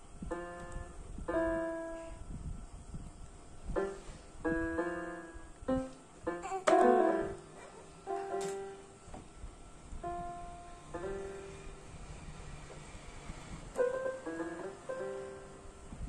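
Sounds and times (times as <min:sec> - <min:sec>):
keyboard chords played randomly: 0:03.8 - 0:09.0, 0:13.7 - 0:15.9.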